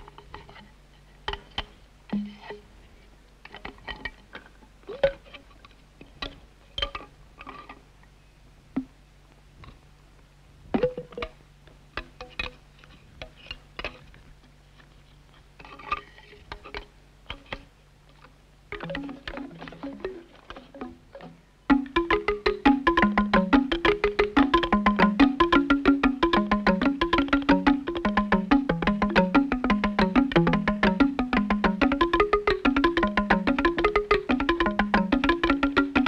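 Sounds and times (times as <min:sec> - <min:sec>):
bamboo tubes knocking against stone: 0:01.3 - 0:02.6, 0:06.1 - 0:07.8, 0:10.8 - 0:14.1, 0:15.6 - 0:36.0.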